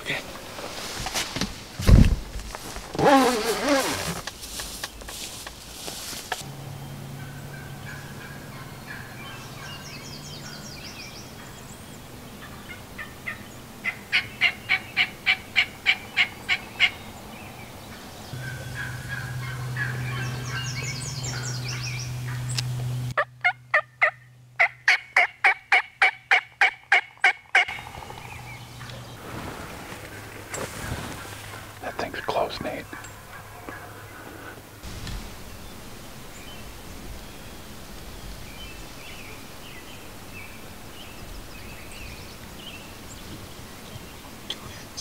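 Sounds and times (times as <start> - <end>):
turkey yelping: 18.4 - 22.4, 23.2 - 27.8.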